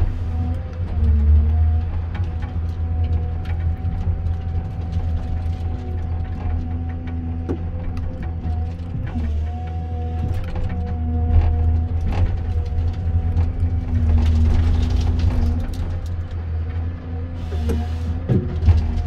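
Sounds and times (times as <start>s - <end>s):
diesel engine under load: 0.0s - 19.0s
hydraulic whine: 17.2s - 19.0s.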